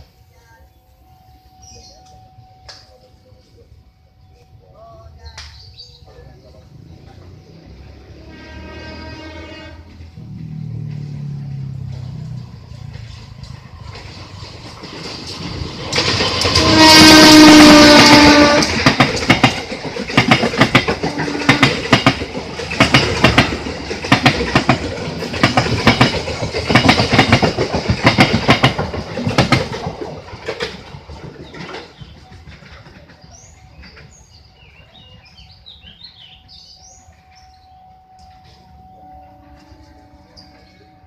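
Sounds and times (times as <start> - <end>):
locomotive horn blast: 7.8 - 12.1, 16.4 - 19.0, 21.0 - 22.0, 38.2 - 41.0
train wheels clacking over rail joints: 9.9 - 36.3.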